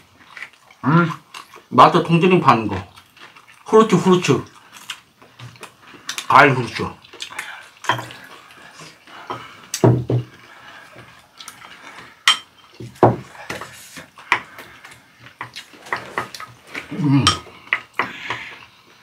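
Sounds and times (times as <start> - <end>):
dishes knocking on table: 9.8 - 10.3, 12.8 - 13.2
utensils clinking on ceramic bowls: 12.2 - 12.6.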